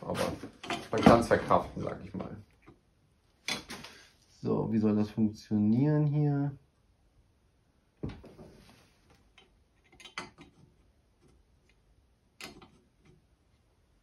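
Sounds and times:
small parts clicking and knocking: 9.1s - 13.3s.

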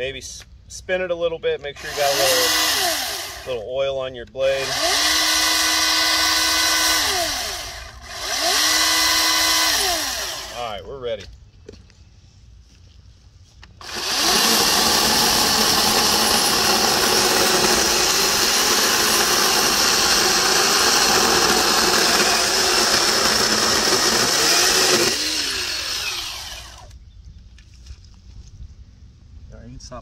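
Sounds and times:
electric chainsaw cutting log: 1.8s - 3.6s, 4.5s - 10.6s, 13.8s - 26.9s.

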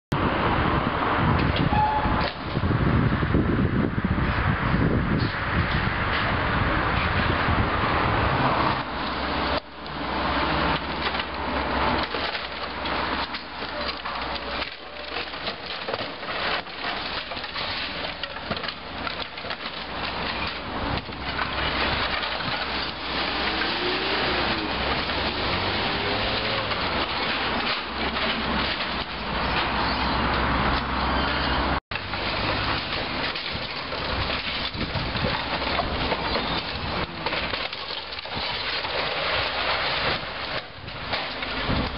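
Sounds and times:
excavator engine hum: 5.9s - 41.9s
timber and masonry cracking: 8.8s - 31.0s, 31.6s - 41.9s.

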